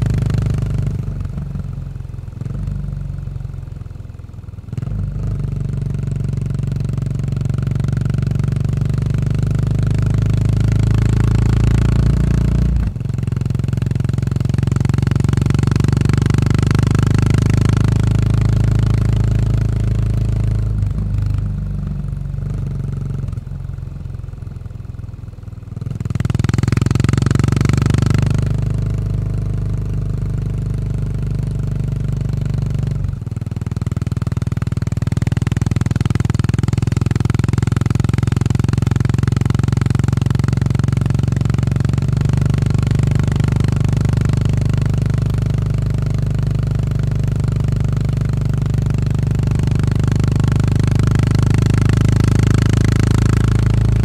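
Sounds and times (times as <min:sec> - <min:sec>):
motorcycle engine while riding: 0:00.0 - 0:54.0.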